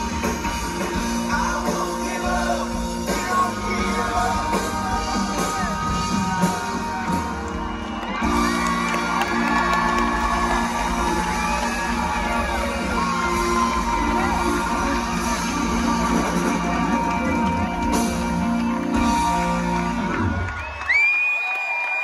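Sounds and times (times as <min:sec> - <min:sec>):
person singing: 0:00.0 - 0:07.5
live rock band: 0:00.0 - 0:21.0
crowd whooping and shouting: 0:02.8 - 0:22.0.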